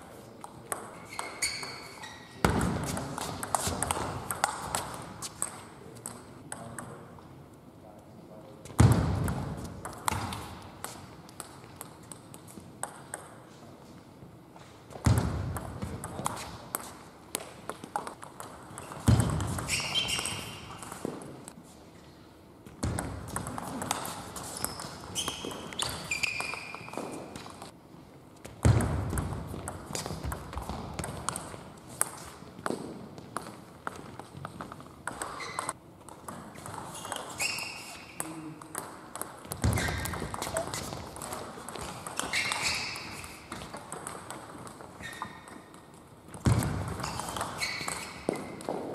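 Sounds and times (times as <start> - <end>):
brief high squeaks: 1.1 - 2.4, 19.7 - 20.7, 24.6 - 27.0, 37.0 - 38.2, 42.2 - 43.2, 47.0 - 48.4.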